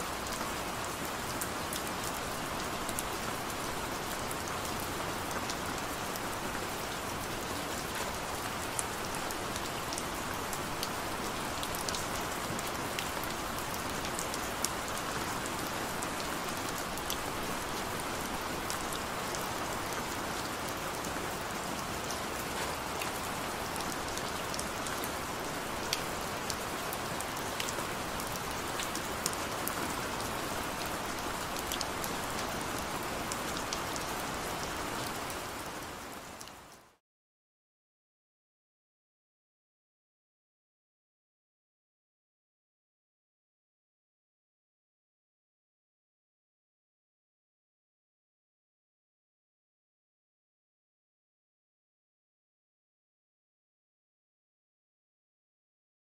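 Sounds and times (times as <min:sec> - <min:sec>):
steady rain hiss: 0:00.0 - 0:37.0.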